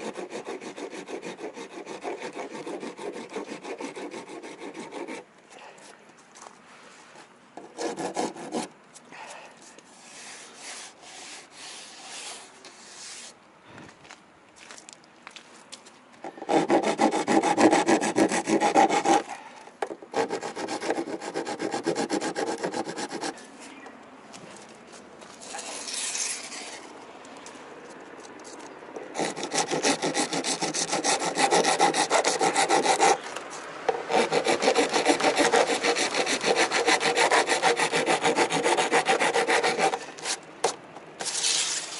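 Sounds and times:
hand file rasping: 0.0 - 5.2, 7.8 - 8.7, 16.4 - 19.4, 20.1 - 23.4, 29.1 - 33.2, 33.9 - 40.4
quiet scraping: 23.2 - 29.1.

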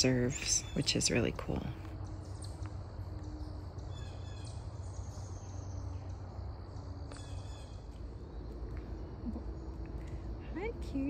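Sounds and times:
faint bird chirps: 0.0 - 10.6
high insect-like call: 0.0 - 11.0
steady low rumble: 0.0 - 11.0.

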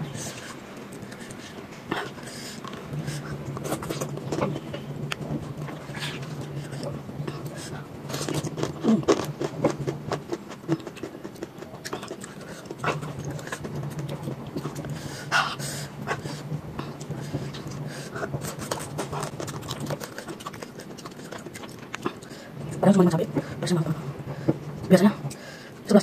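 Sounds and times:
low steady hum: 0.0 - 26.0
panting breaths: 0.1 - 3.4, 14.8 - 22.6
wet chewing and lip smacks: 0.3 - 15.0, 16.2 - 22.4.

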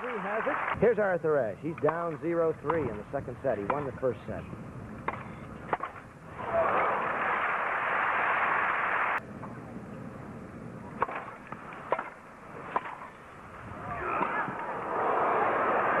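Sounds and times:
tennis racquet striking ball: 5.0 - 6.0
crowd noise: 5.3 - 16.0
crowd applause: 6.4 - 9.2, 14.4 - 16.0.

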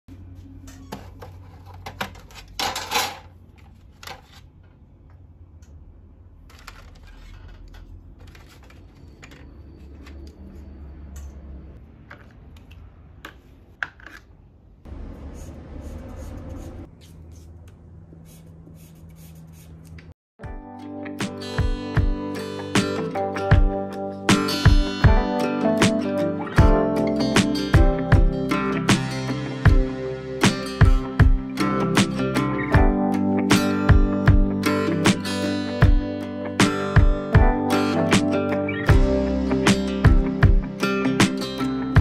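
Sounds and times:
pencils clattering in metal tins: 1.1 - 3.3, 6.5 - 10.3.

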